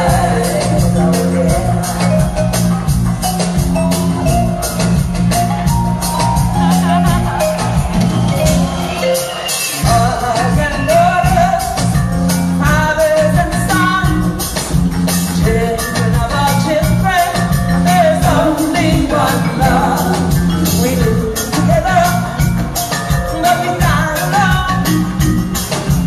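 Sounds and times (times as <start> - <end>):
woman singing: 0.0 - 2.2, 9.8 - 12.0, 12.6 - 14.5, 15.4 - 22.5, 23.1 - 25.1
live band with bass and drums: 0.0 - 26.0.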